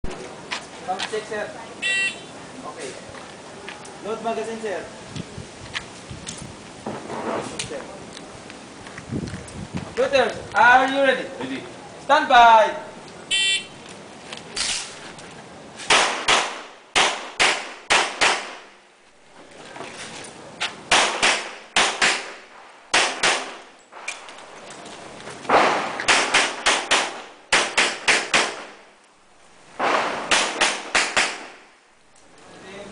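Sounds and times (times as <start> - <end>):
pistol shots: 15.9 - 18.7, 20.9 - 23.7, 25.5 - 28.8, 29.8 - 31.7.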